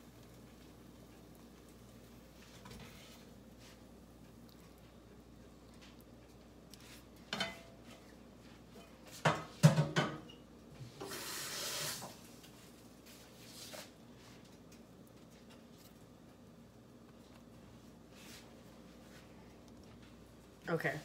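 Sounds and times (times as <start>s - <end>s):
steady hissing noise: 0.0s - 9.8s, 10.6s - 21.0s
cookware clattering: 7.3s - 7.8s, 9.2s - 10.4s.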